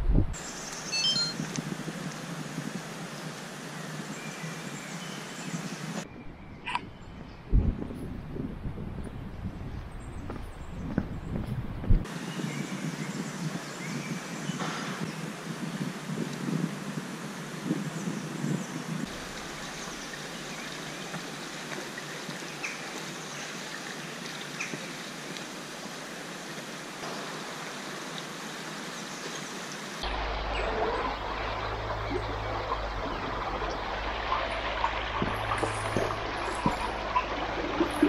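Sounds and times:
stream flowing over stones: 19.0s - 38.0s.

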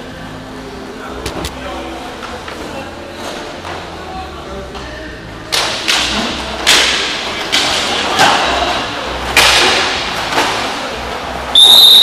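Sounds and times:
hockey sticks hitting puck: 5.5s - 11.2s.

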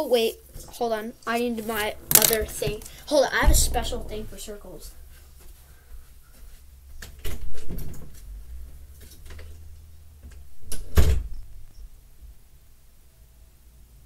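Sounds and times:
objects knocking and bumping: 2.1s - 2.8s.

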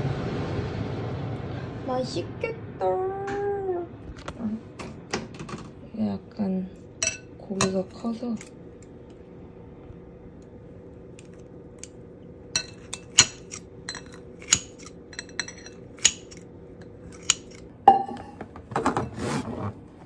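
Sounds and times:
faint steady hum: 0.0s - 20.0s
cutlery and dishes clinking: 7.0s - 8.6s, 12.6s - 19.1s.

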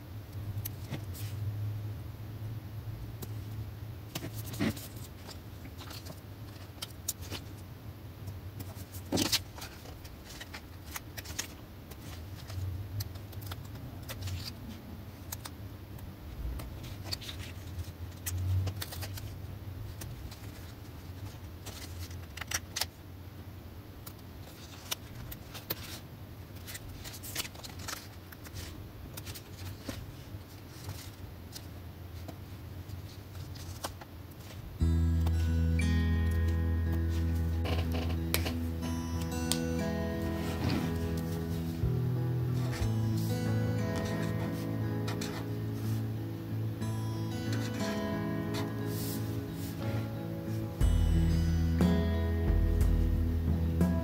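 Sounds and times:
low steady hum: 0.0s - 54.0s
paper rustling: 4.1s - 7.6s, 8.6s - 15.5s, 16.4s - 23.0s, 24.4s - 34.7s.

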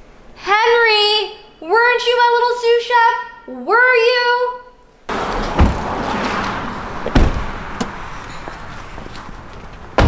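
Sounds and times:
outdoor background noise: 0.0s - 10.0s
car doors shutting: 5.1s - 10.0s.

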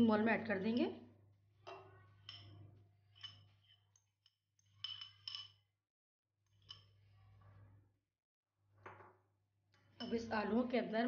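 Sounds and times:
metal spoon scraping glass bowl: 1.6s - 5.6s, 6.5s - 7.7s, 9.9s - 10.7s
spoon tapping: 1.7s - 5.6s.

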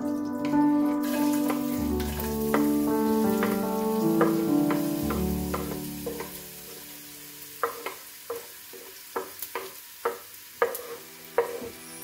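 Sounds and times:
onions frying faintly: 0.0s - 12.0s
wooden spatula tapping on board: 2.5s - 6.4s, 7.6s - 11.7s.

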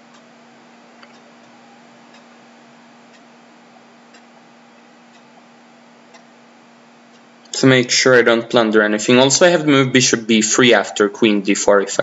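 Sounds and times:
clock ticking: 0.0s - 4.4s, 5.0s - 5.4s, 6.0s - 6.4s, 7.0s - 7.6s
low hum and hiss: 0.0s - 12.0s.

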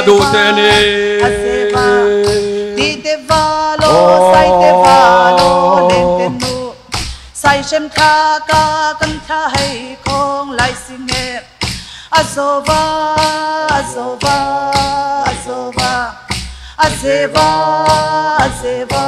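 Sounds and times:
person singing through a microphone: 0.0s - 6.8s, 16.8s - 19.0s.

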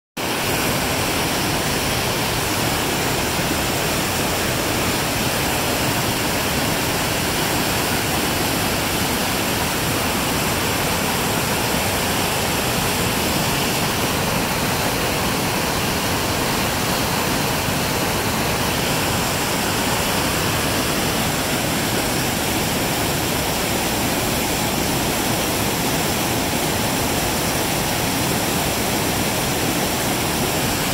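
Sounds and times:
whitewater rapids rushing: 0.2s - 30.9s.

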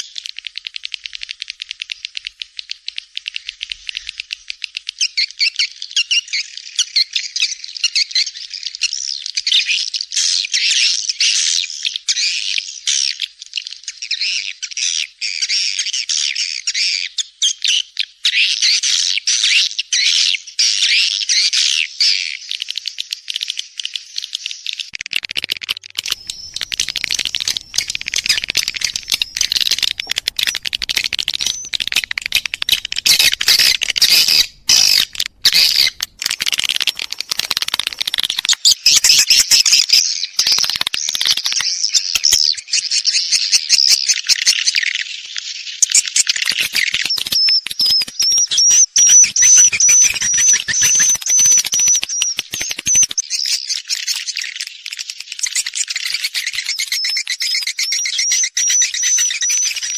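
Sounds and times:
rapid stream of clicks: 24.9s - 39.2s, 40.4s - 42.3s, 46.2s - 57.6s
swiftlets twittering and chirping: 25.1s - 42.6s, 45.8s - 59.9s.

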